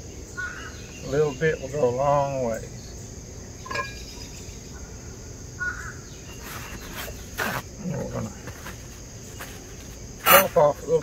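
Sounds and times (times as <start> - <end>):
bird chirp: 0.0 - 7.6
crickets chirring: 0.0 - 11.0.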